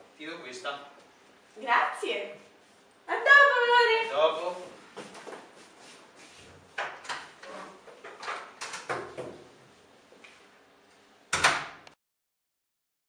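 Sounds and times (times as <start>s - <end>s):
footsteps: 4.0s - 6.8s.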